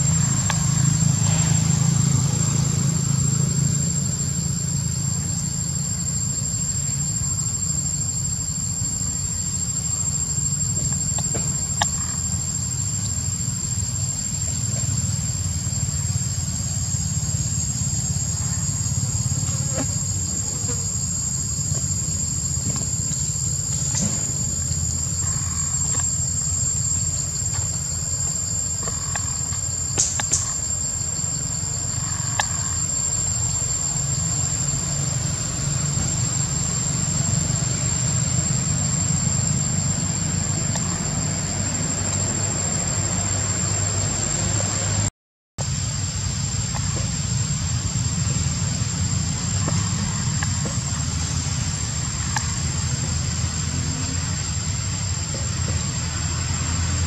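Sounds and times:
insects droning: 0.0s - 57.0s.

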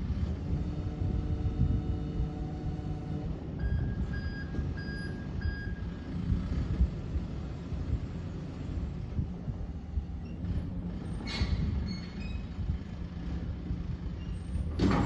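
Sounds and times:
diesel engine rumble: 0.0s - 15.0s
truck reversing alarm beeping: 2.8s - 6.2s.

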